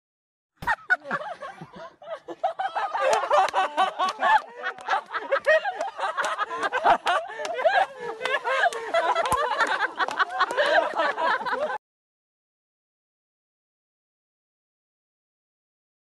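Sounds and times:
people laughing loudly: 0.6 - 11.8.

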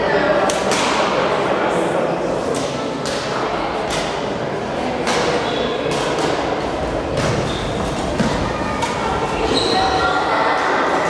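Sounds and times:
echoing sports hall noise: 0.0 - 11.0
rackets hitting shuttlecock: 0.5 - 1.2, 2.5 - 4.4, 5.0 - 9.6.

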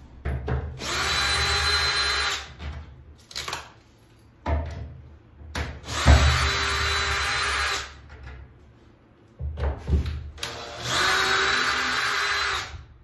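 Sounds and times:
cordless drill whining: 10.4 - 12.8.

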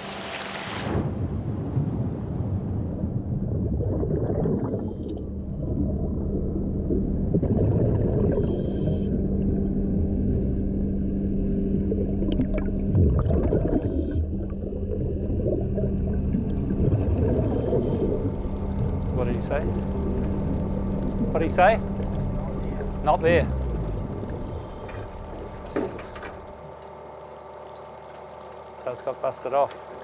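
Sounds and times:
low machinery hum underwater: 0.0 - 30.0
diver breathing bubbles: 3.6 - 9.3, 12.5 - 25.7.

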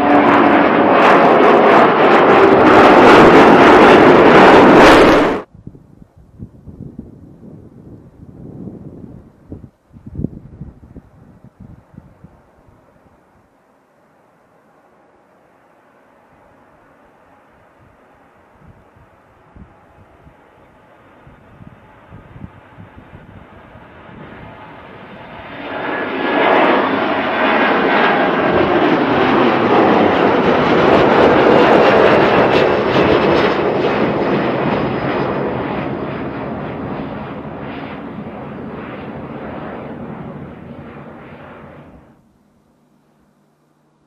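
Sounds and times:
jet airliner taking off: 0.0 - 5.5, 14.8 - 42.2.

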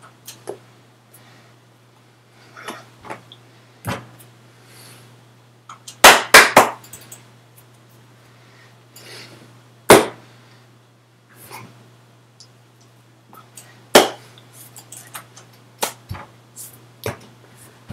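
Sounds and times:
low electrical hum: 0.0 - 17.9
sharp hand slaps: 6.0 - 6.8, 15.8 - 16.0
hand movement clicks and rustles: 14.5 - 17.4.

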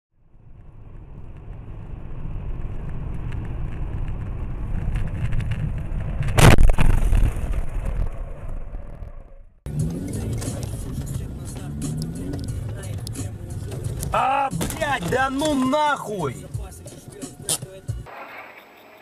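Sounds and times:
car road and engine rumble: 0.2 - 19.0
loud collision impact: 6.2 - 9.2.

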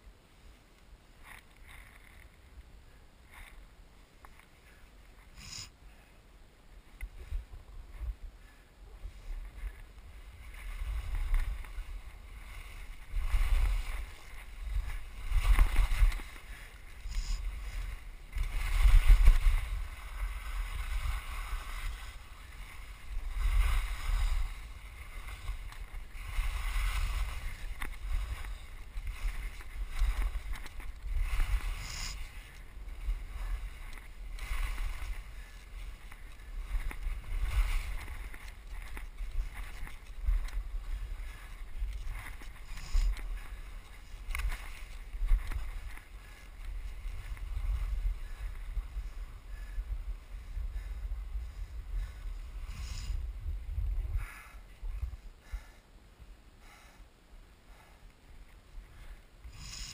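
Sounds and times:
wind buffeting microphone: 7.1 - 55.7
skis scraping over snow: 9.1 - 53.4.

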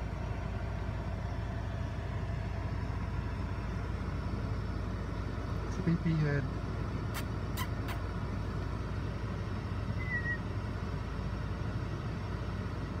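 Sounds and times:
car cabin engine rumble: 0.0 - 13.0
brief high squeak: 7.1 - 8.1, 10.0 - 10.4.

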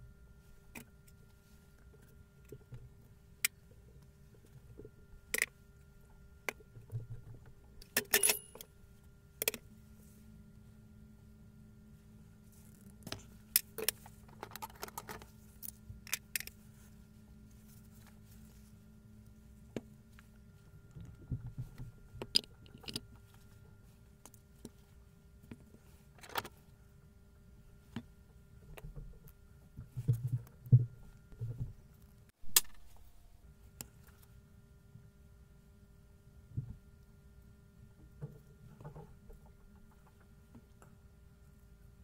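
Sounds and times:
metal parts and tools clinking: 7.8 - 8.7.

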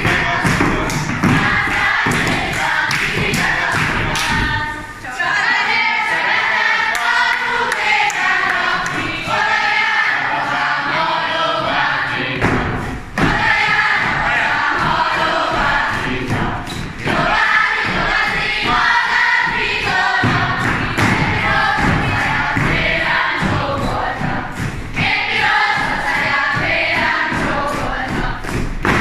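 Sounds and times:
feet stamping on floor: 0.0 - 4.8, 11.5 - 29.0
group singing in unison: 0.0 - 29.0.

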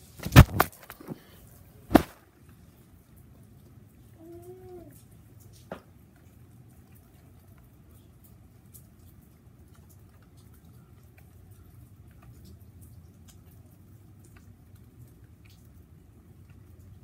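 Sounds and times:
camera handling rumble: 0.2 - 1.2.

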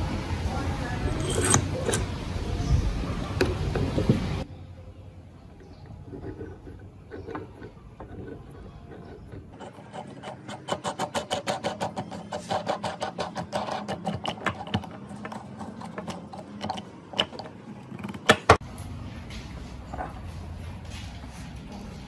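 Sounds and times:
threads clicking with metallic ring: 1.1 - 2.1.

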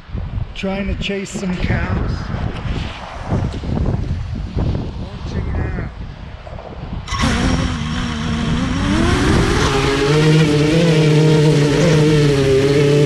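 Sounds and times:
drone motors whining: 7.1 - 13.0.

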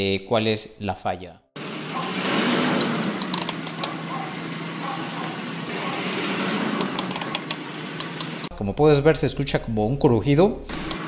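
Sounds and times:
wheel bearing crunching: 1.6 - 8.5
vehicle hum: 1.6 - 8.6
sharp clicks: 2.7 - 4.2, 4.8 - 8.5, 10.7 - 11.0.

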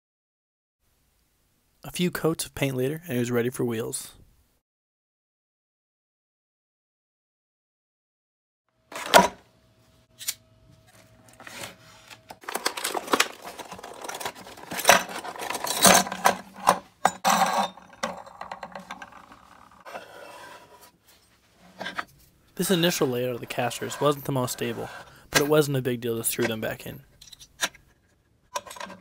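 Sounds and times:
metal casters clinking and rattling: 12.4 - 19.6, 27.1 - 27.8.

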